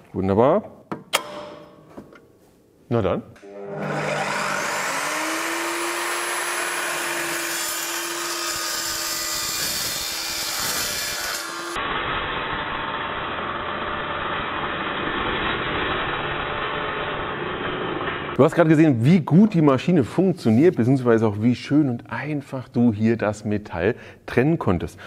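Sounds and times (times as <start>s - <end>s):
saw blade cutting steel: 3.4s - 18.3s
metal chop saw whining: 3.4s - 18.4s.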